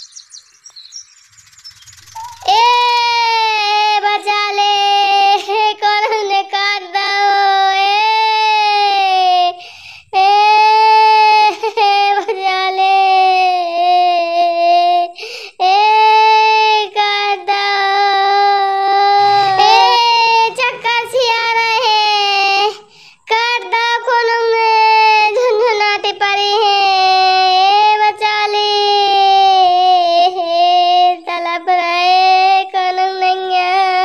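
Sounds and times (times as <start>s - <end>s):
high-pitched voice holding wordless notes: 2.2s - 5.4s, 18.8s - 27.4s.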